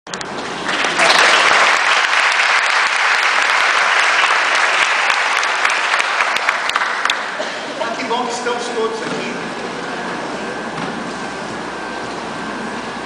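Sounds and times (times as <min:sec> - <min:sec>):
audience applauding: 0:00.5 - 0:07.4.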